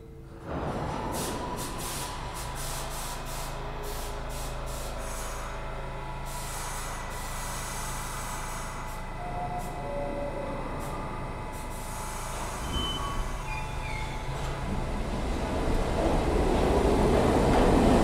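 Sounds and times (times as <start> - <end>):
low hum from train car: 0.0 - 18.0
train brakes hissing air: 1.1 - 9.8, 10.8 - 14.3.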